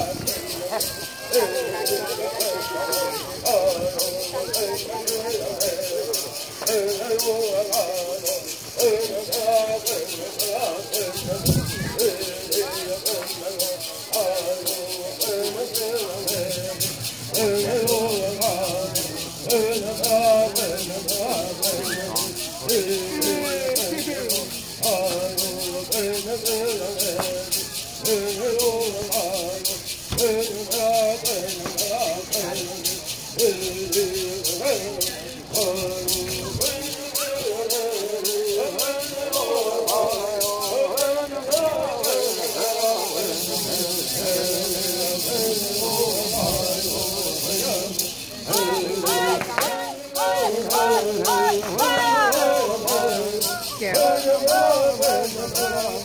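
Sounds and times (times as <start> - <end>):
gourd rattles shaking: 0.0 - 56.0
group of people singing: 0.0 - 56.0.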